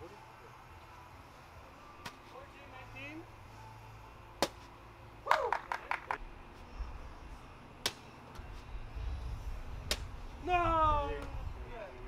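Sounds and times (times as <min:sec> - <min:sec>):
wind rumble on microphone: 0:08.4 - 0:12.0.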